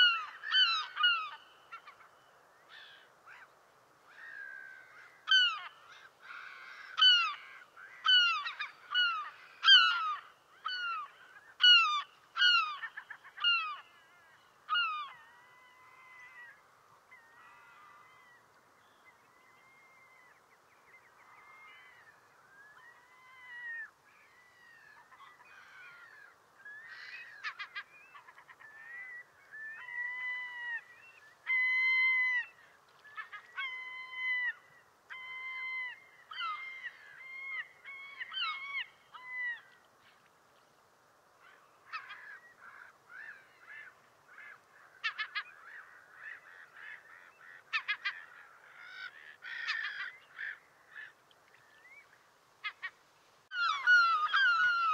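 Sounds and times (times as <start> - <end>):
gulls calling: 51.8 - 54.9.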